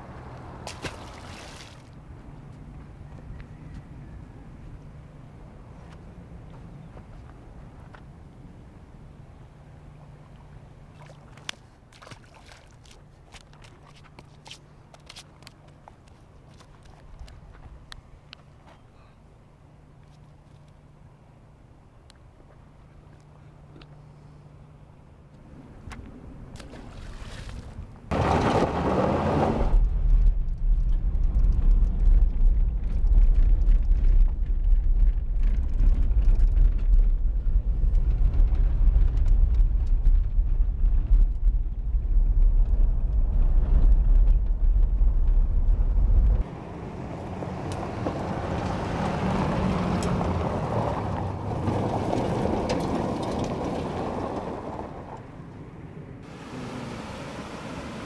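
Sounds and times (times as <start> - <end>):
vehicle engine and road rumble: 0.0 - 58.0
vehicle driving across gravel: 26.7 - 55.2.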